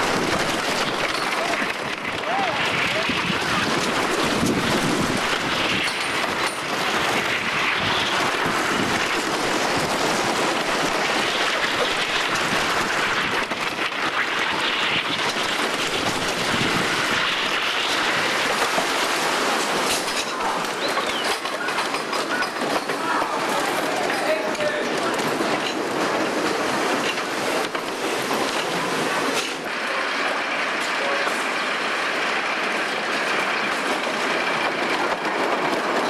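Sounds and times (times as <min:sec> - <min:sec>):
wind on microphone: 0:00.0 - 0:18.7
roller coaster rumbling on track: 0:00.0 - 0:36.0.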